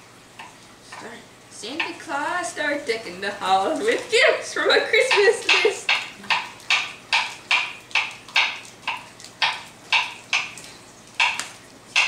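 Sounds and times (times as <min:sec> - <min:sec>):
sharp knocks: 0:05.1 - 0:10.6, 0:11.2 - 0:12.0.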